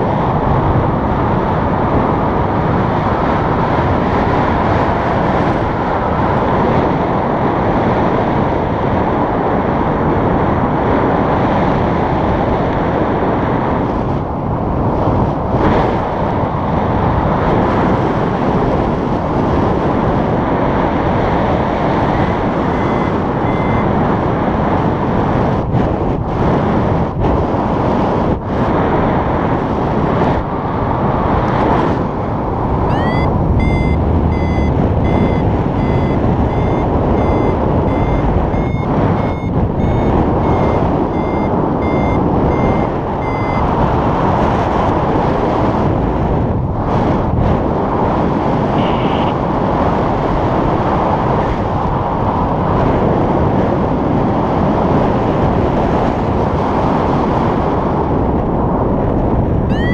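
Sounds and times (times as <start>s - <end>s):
wind rush on microphone: 0.0s - 59.9s
variometer beeping: 22.0s - 24.2s, 32.2s - 44.1s, 48.8s - 49.4s, 59.7s - 59.9s.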